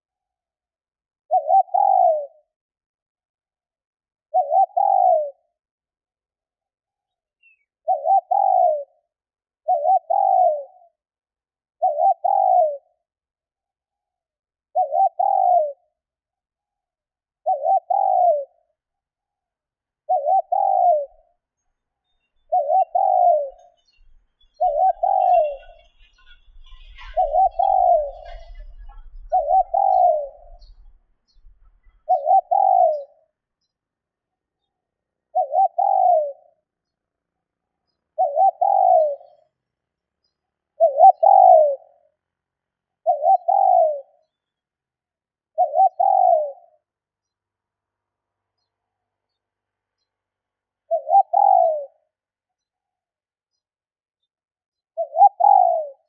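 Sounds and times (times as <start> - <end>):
dove cooing: 1.3 - 2.5, 4.3 - 5.5, 7.8 - 9.0, 9.6 - 10.9, 11.8 - 13.0, 14.7 - 15.9, 17.4 - 18.7, 20.0 - 21.2, 22.5 - 23.9, 24.6 - 31.0, 31.6 - 33.3, 35.3 - 36.6, 38.1 - 39.4, 40.8 - 42.0, 43.0 - 44.2, 45.5 - 46.8, 50.9 - 52.0, 55.0 - 56.0.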